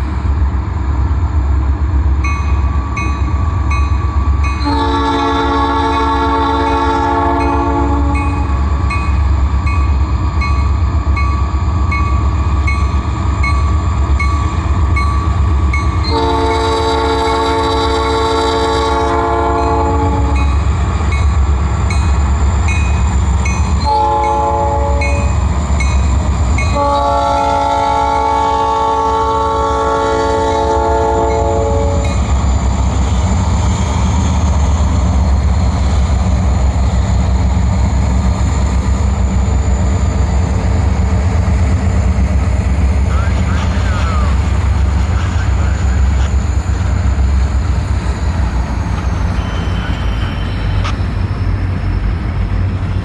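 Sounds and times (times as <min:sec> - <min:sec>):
diesel locomotives rumbling: 0:00.0 - 0:53.0
train air horn blasts: 0:04.6 - 0:08.6, 0:16.1 - 0:20.5, 0:23.8 - 0:25.3, 0:26.7 - 0:32.1.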